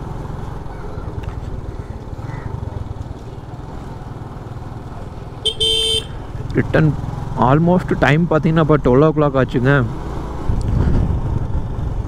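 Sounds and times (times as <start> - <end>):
motorcycle engine running: 0.0 - 12.0
short horn beep: 5.4 - 6.1.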